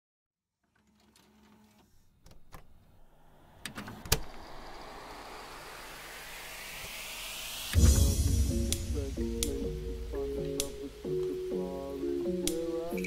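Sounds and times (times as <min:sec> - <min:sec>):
rising noise sweep: 0:02.7 - 0:13.0.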